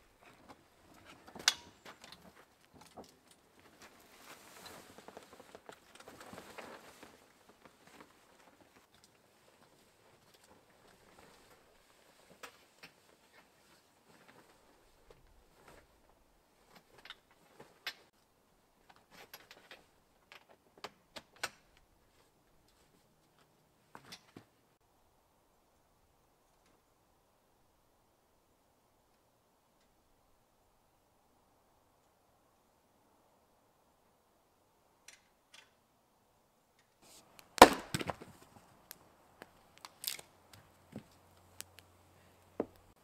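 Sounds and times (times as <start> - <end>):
tent latches clicking and rattling: 1.0 - 3.5, 18.9 - 21.8, 39.8 - 40.3.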